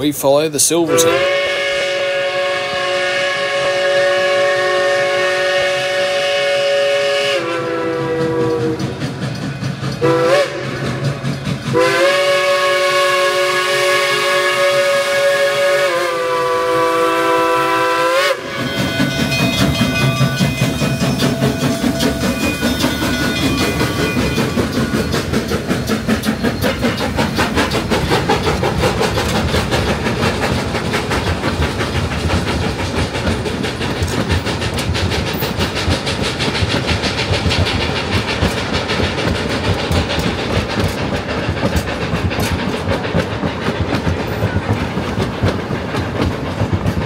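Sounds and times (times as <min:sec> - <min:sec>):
rail clatter: 0:00.0 - 0:47.0
steam locomotive chuffing: 0:00.0 - 0:47.0
steam locomotive whistle blasts: 0:00.8 - 0:09.0, 0:10.0 - 0:11.0, 0:11.7 - 0:20.5.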